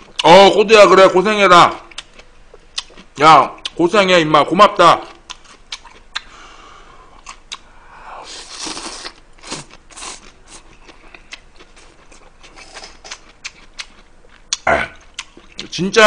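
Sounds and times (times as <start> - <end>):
chewing: 1.7 - 3.8, 5.0 - 6.3, 7.2 - 7.7, 8.3 - 15.8
person slurping noodles: 8.1 - 10.3.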